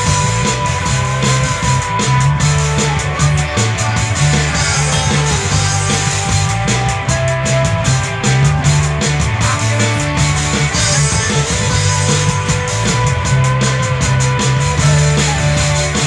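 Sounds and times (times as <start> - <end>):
electric guitar: 0.0 - 16.0
electronic drum beat: 0.0 - 16.0
held low notes: 0.0 - 16.0.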